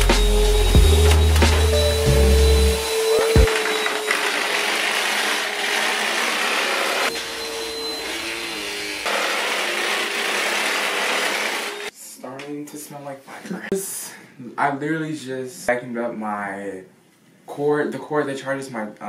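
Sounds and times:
vacuum cleaner running: 0.0s - 11.9s.

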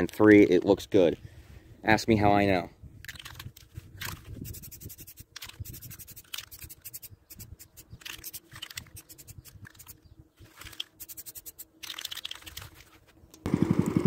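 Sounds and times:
aerosol spray paint bursts: 4.4s - 9.9s, 11.0s - 11.8s.

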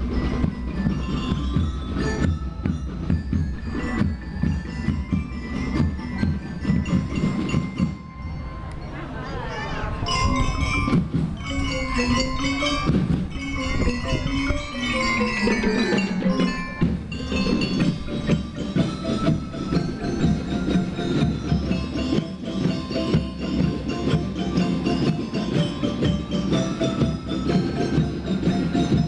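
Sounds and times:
driving drum beat: 0.0s - 8.1s, 10.4s - 29.0s
bell lyres playing melody: 0.0s - 29.0s.

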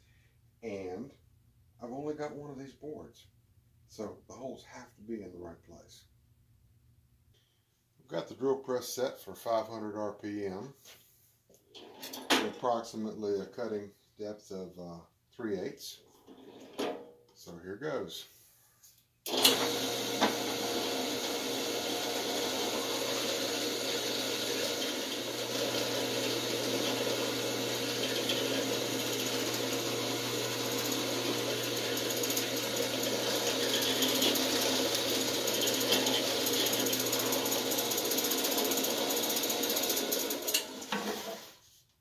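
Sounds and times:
drill press motor humming: 19.3s - 41.5s.

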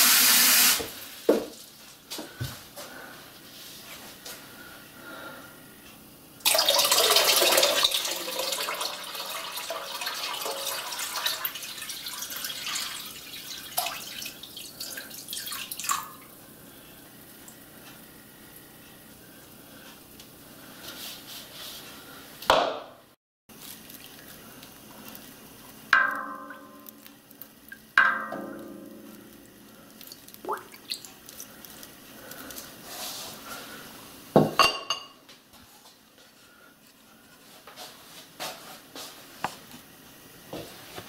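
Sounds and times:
water pouring into metal tank: 6.4s - 16.2s
water trickling and dripping: 7.6s - 16.3s, 26.0s - 31.9s.

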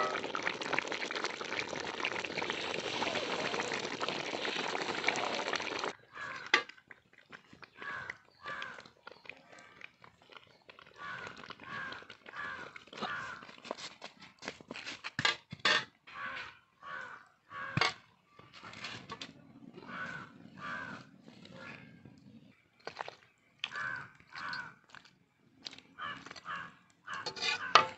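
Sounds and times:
crows cawing: 6.0s - 6.7s, 7.8s - 8.9s, 11.0s - 13.5s, 16.1s - 18.0s, 19.8s - 21.8s, 23.7s - 24.8s, 26.0s - 27.9s.

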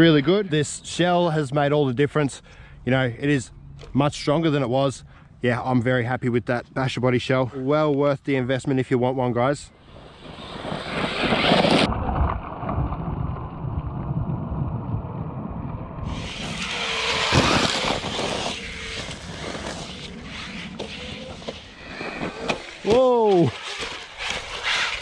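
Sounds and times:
rc truck driving over gravel: 9.5s - 14.5s, 16.0s - 25.0s
wind noise on microphone: 9.8s - 22.5s.

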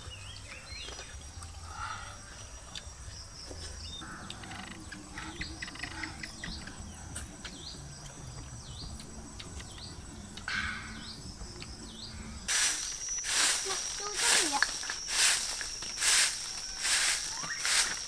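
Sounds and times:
high-pitched insect drone: 4.0s - 18.0s
bird falling chirp: 12.5s - 18.0s.

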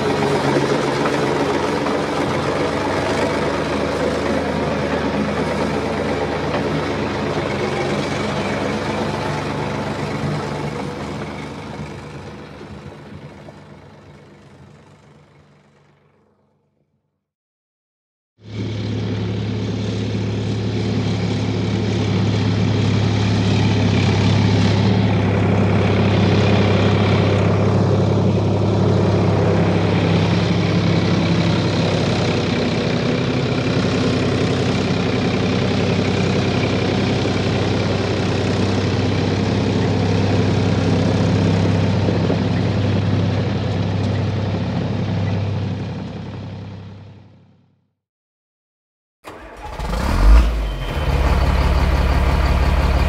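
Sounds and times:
heavy engine running: 0.0s - 16.8s, 18.4s - 47.9s, 49.3s - 53.0s.

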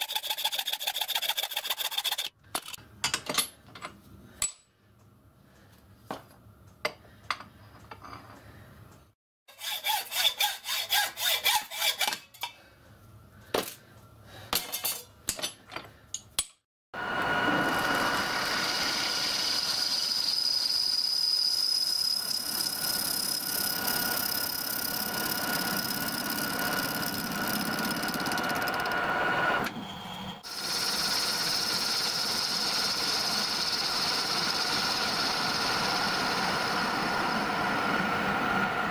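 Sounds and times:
file rasping on metal: 0.0s - 2.4s, 9.5s - 12.2s
metal lathe cutting with whine: 17.0s - 38.2s.

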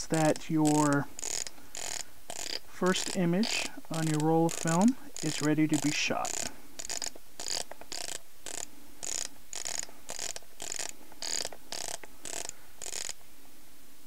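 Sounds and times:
camera film advance knob winding: 0.3s - 13.2s.

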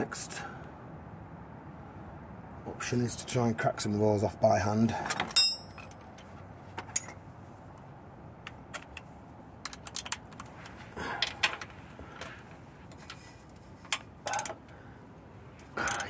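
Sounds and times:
metal tool clicks and clinks: 5.1s - 6.3s.

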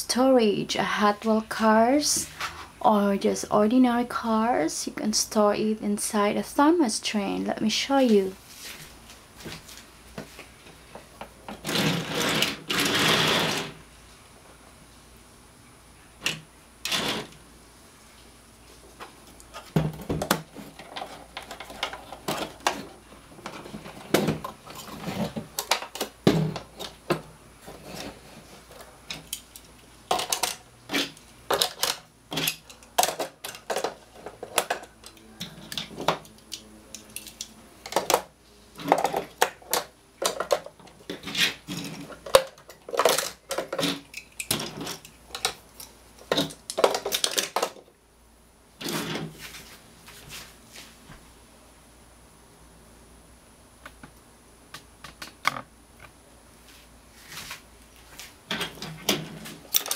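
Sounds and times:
toy cars clacking on plastic: 30.1s - 45.6s, 46.3s - 47.8s.

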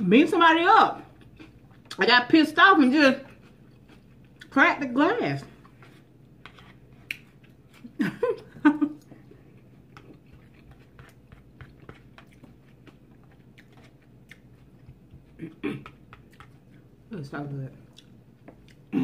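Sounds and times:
close-up chewing: 3.2s - 4.6s, 5.5s - 8.0s, 9.0s - 17.0s, 17.9s - 18.9s.

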